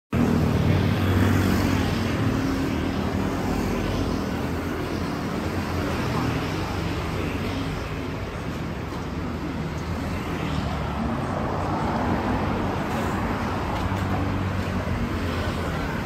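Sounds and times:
cars and scooters passing: 0.2s - 16.0s.

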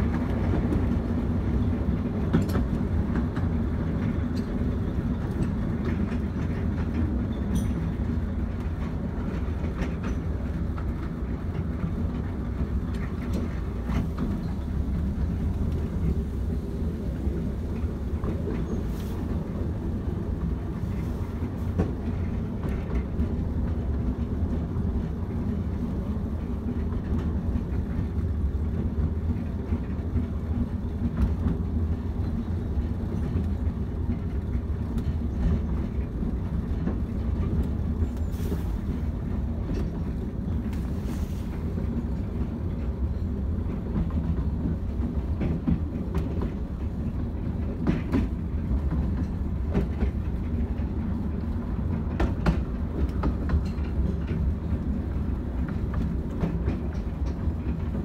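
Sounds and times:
rail joint clicks: 0.0s - 58.0s
wheels rumbling on track: 0.0s - 58.0s.

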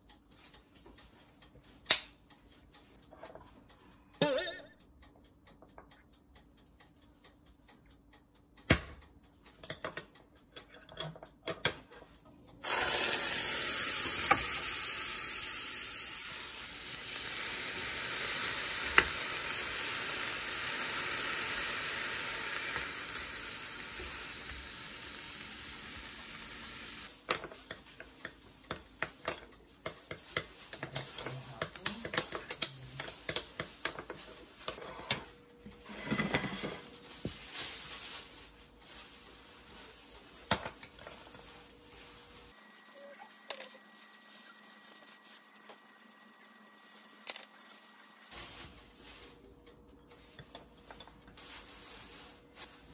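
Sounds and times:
shrimp sizzling in frying pan: 12.6s - 27.1s.

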